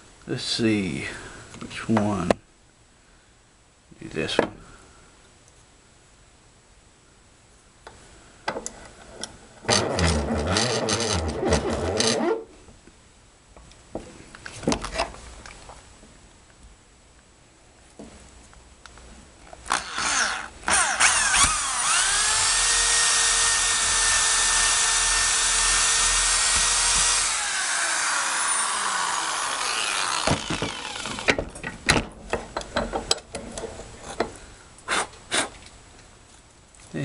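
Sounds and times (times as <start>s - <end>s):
cordless drill motor whining: 19.7s - 31.4s.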